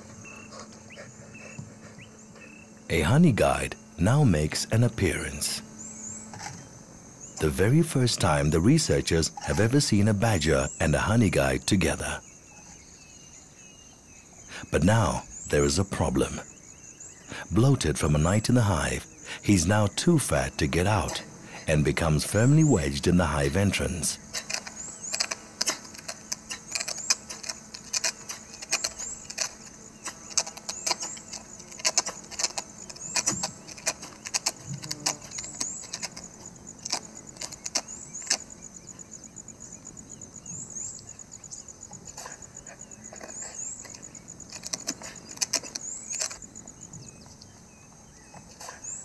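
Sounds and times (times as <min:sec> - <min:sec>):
claws scratching on bark and wood: 0:20.5 - 0:39.1, 0:41.8 - 0:47.2.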